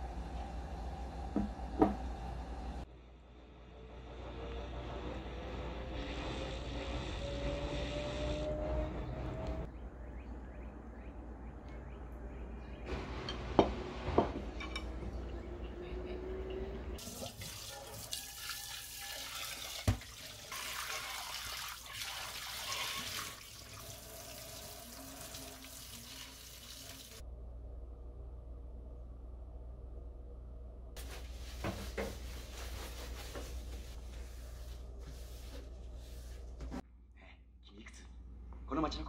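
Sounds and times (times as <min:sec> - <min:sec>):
metal strainer rinsed by hand: 0:17.0 - 0:27.2.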